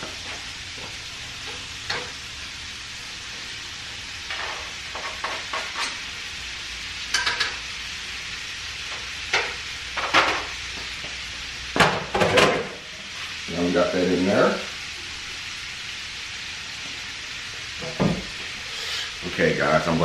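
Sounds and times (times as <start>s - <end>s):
meat and onion sizzling in pan: 0.0s - 20.0s.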